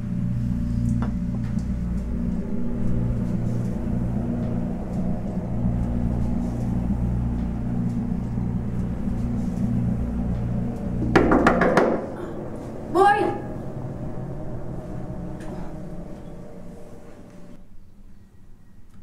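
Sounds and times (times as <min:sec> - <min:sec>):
low pulsing rumbling drone: 0:00.0 - 0:18.6.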